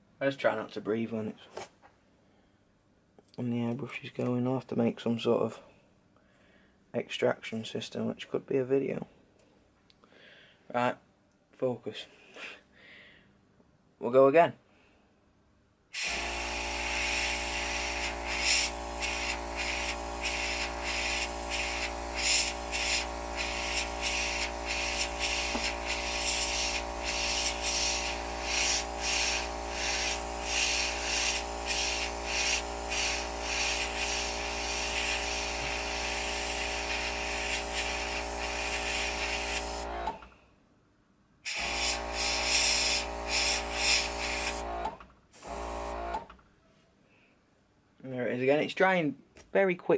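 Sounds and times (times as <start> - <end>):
airbrush hissing: 16.0 - 40.1, 41.5 - 44.8, 45.4 - 46.1
compressor electric hum: 16.0 - 40.3, 41.5 - 46.3.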